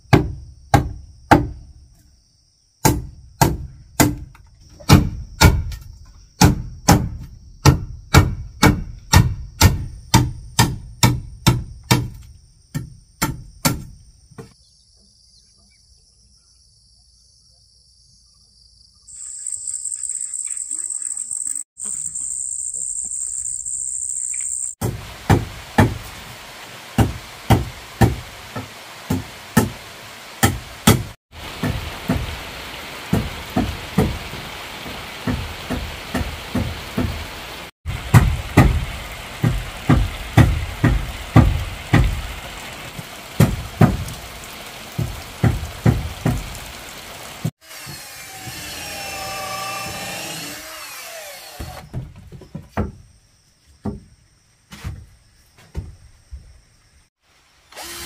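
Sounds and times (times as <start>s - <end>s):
scattered knocks: 33.1s - 37.2s.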